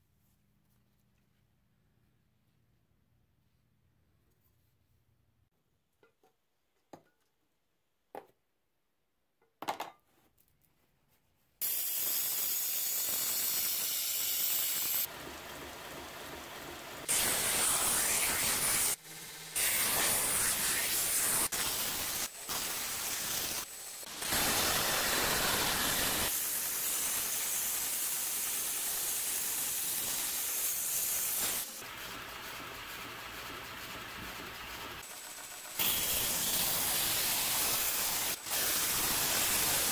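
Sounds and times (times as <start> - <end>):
belt grinder grinding steel: 17.0 - 31.8, 35.0 - 39.9.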